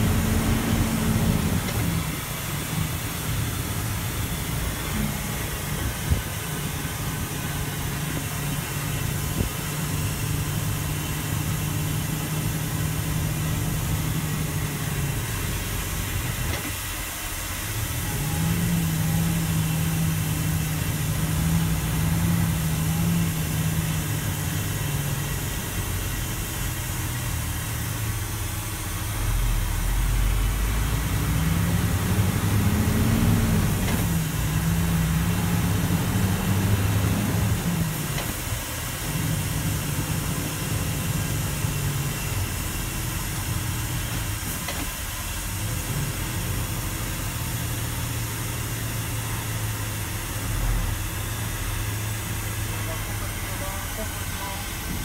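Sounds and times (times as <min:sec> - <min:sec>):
truck diesel engine running: 0:00.0 - 0:55.0.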